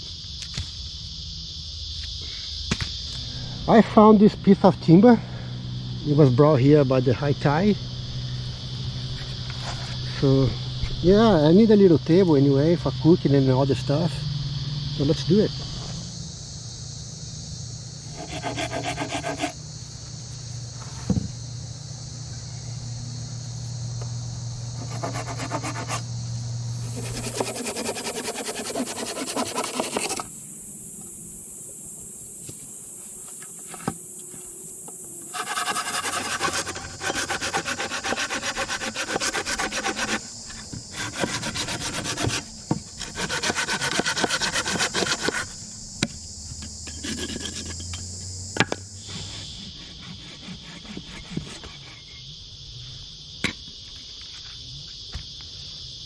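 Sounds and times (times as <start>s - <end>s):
hand saw cutting timber: 18.1s - 19.6s, 24.8s - 26.1s, 26.8s - 30.3s, 35.3s - 45.6s, 46.9s - 47.9s, 49.1s - 52.1s.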